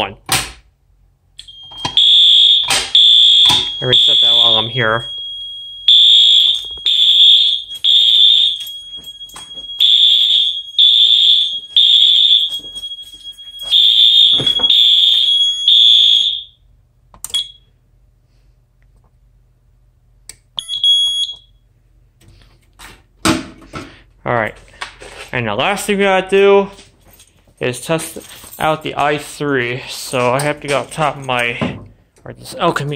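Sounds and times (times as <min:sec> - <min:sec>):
high-pitched alarm horn blasts: 0:01.6 - 0:08.9, 0:09.8 - 0:12.5.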